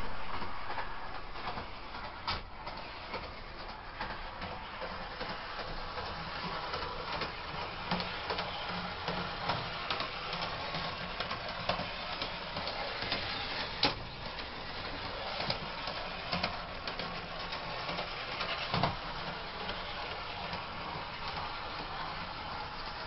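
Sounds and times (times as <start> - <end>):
model train motor whirring: 1.1 - 23.0.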